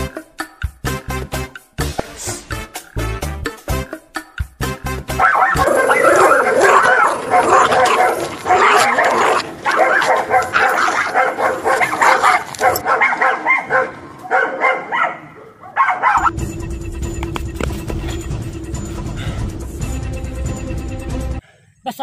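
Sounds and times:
dogs barking and yelping: 5.1 - 16.3.

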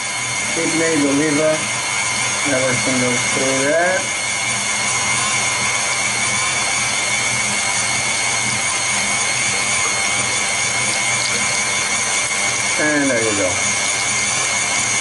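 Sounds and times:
meat being ground: 0.0 - 15.0
stand mixer motor whining: 0.0 - 15.0.

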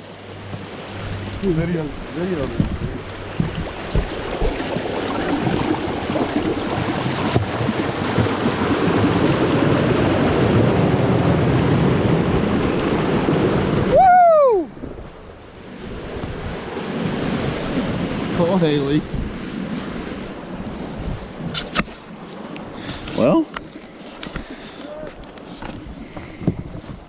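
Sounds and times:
propeller churning water and sand: 0.0 - 27.0
rush of spray and wind: 0.0 - 27.0
man shouting: 13.9 - 14.7.

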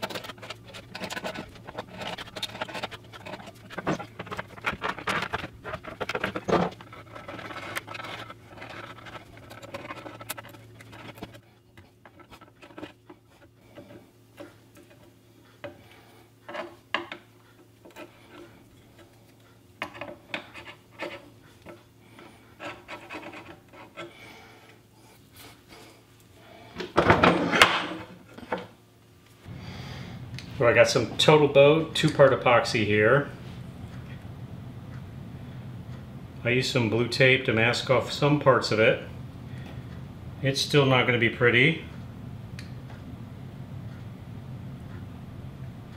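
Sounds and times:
hand tool scraping wood: 0.0 - 16.8, 19.8 - 24.3.

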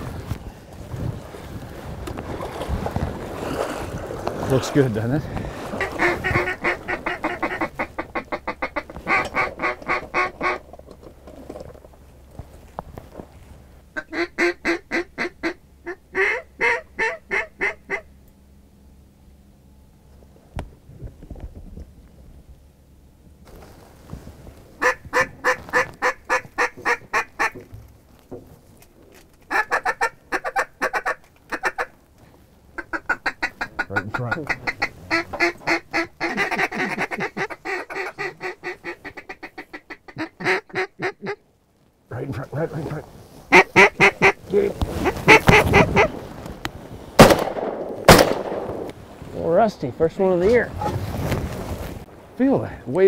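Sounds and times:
duck call quacking: 5.7 - 10.6, 14.0 - 18.1, 24.8 - 27.6, 29.5 - 31.9, 32.8 - 41.4, 43.5 - 46.2.

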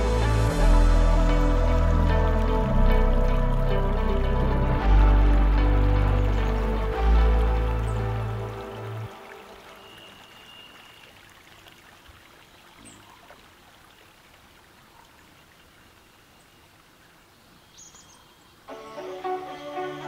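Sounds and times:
music: 0.0 - 9.8, 18.7 - 20.0
flowing river water: 0.0 - 20.0.

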